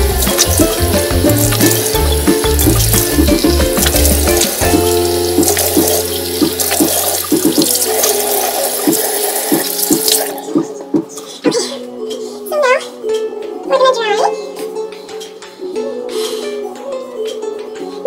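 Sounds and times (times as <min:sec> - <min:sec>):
background music with bass line: 0:00.0 - 0:09.8
tap running into a sink: 0:00.2 - 0:07.9.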